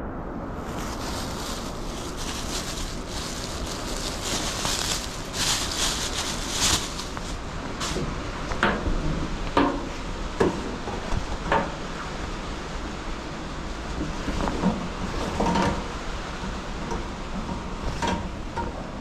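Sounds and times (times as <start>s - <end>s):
plastic bag rustling: 0.5s - 8.2s.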